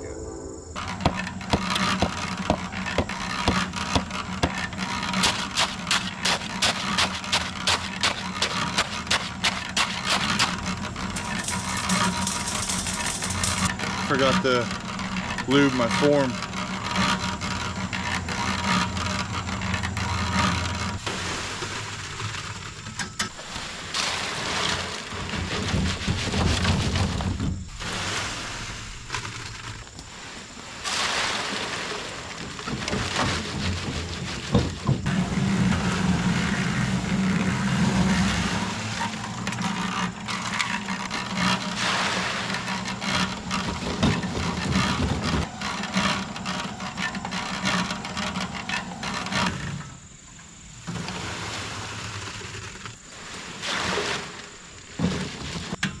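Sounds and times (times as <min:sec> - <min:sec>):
cement mixer drum turning: 0:00.8 - 0:23.4, 0:31.4 - 0:50.0
scraping: 0:00.8 - 0:50.0.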